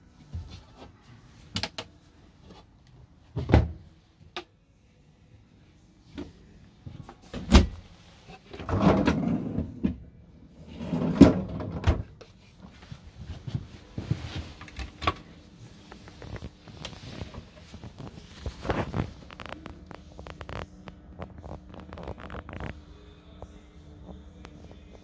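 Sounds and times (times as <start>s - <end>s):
cupboard doors opening and shutting: 3.4s - 3.8s, 7.2s - 7.8s, 8.5s - 10.0s, 10.7s - 12.2s, 14.2s - 15.3s
drawers sliding and scraping: 7.3s - 10.0s, 10.6s - 12.1s.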